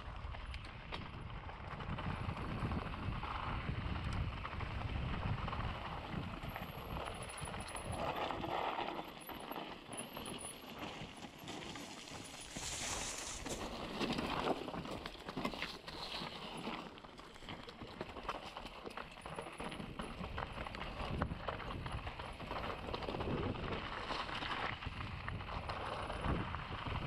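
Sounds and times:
wind rumbling on microphone: 0.0 - 9.1, 19.8 - 27.0
bike rattling and clicking: 0.0 - 27.0
tyres on dirt and rock: 0.2 - 27.0.

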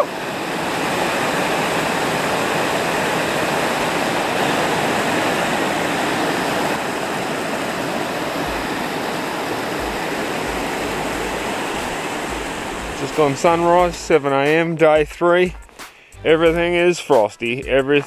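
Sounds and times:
water rushing over rocks: 0.0 - 14.2.

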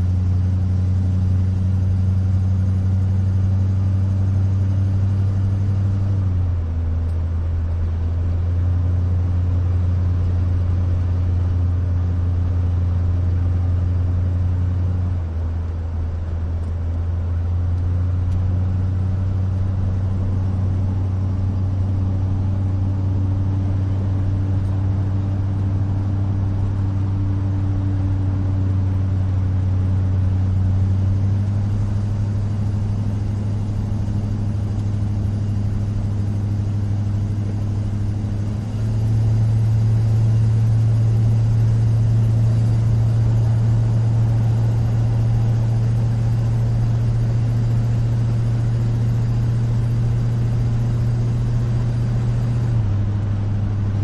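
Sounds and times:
low engine hum: 0.0 - 54.0
road and tyre noise: 0.0 - 54.0.

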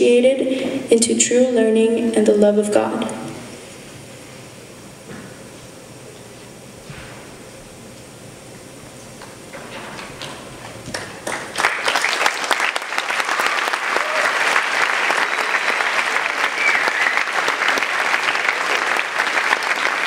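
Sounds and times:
audience applauding: 10.2 - 20.0.

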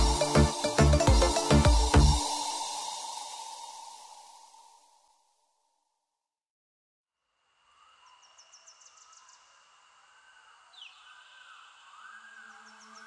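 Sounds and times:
slow swelling tones: 0.0 - 5.2
steady high tone: 0.0 - 5.2.

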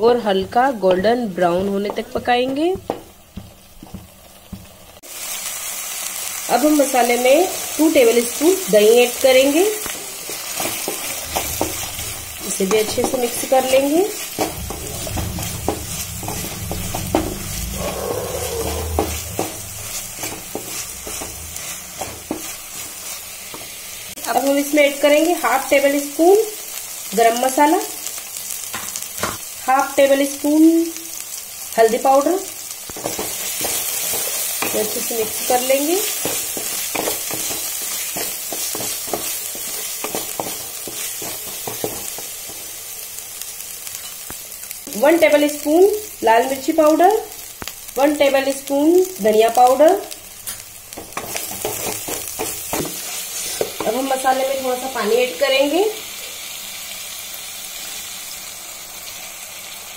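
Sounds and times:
light sizzle of frying: 0.0 - 59.9
wooden spatula scraping and tapping: 0.2 - 4.7, 9.8 - 17.4, 18.6 - 23.8, 32.9 - 42.7, 50.5 - 54.2.

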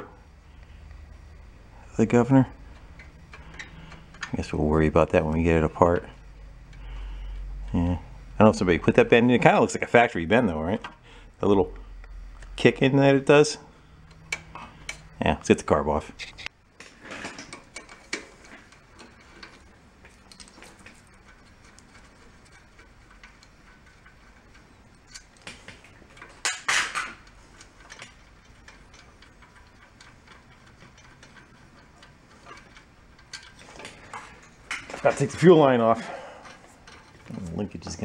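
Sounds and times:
small metal clinks: 17.2 - 37.3.

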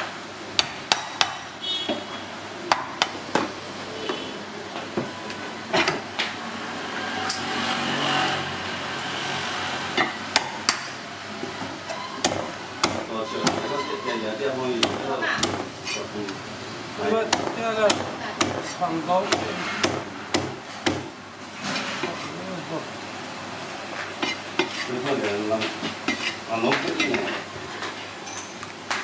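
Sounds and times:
cleaver chopping on wooden block: 12.2 - 13.7, 17.3 - 21.1.

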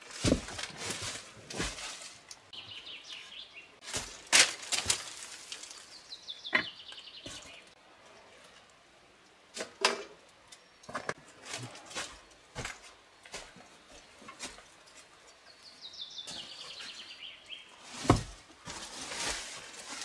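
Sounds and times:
dry leaves rustling: 0.0 - 6.4, 16.2 - 20.0.

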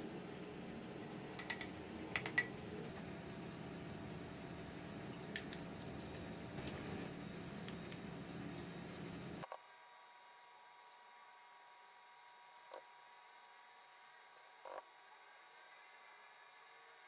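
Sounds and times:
steady low hum: 0.0 - 9.5.

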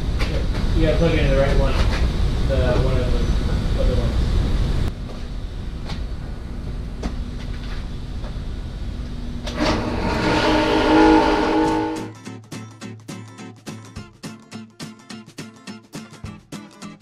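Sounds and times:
low steady hum: 0.0 - 12.1
table saw motor whining: 9.5 - 12.1
strummed guitar music: 10.9 - 17.0.

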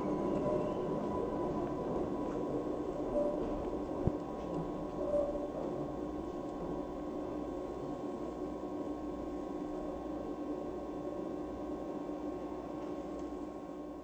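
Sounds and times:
tram wheels squealing: 0.0 - 2.0.

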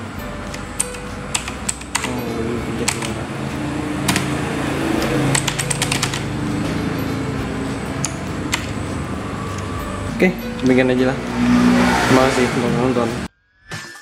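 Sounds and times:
clicky keyboard keys pressed: 2.8 - 3.2, 5.3 - 6.2.

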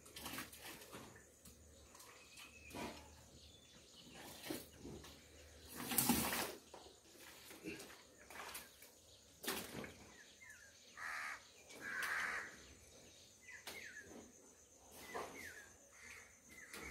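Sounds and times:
crows cawing: 11.0 - 12.6.

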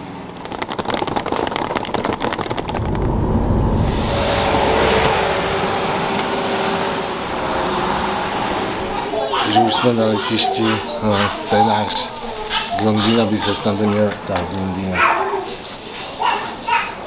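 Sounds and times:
fast rattle of clicks: 0.3 - 3.1
car engine humming: 1.8 - 9.2.

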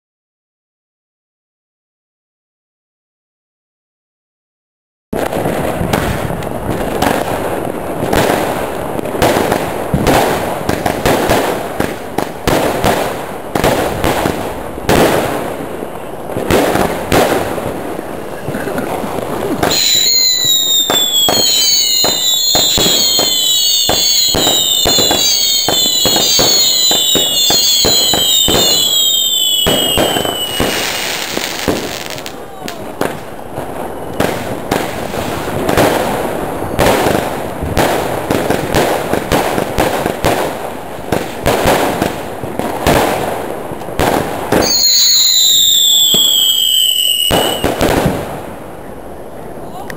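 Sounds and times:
firework shots and crackling: 5.2 - 48.7
firework whistles falling in pitch: 19.6 - 32.3, 44.5 - 47.9.

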